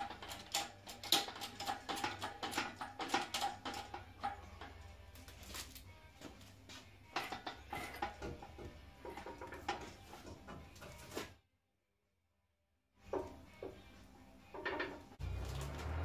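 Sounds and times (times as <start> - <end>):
metallic knocks and clanks: 0.0 - 5.1, 7.0 - 11.1, 13.0 - 16.0.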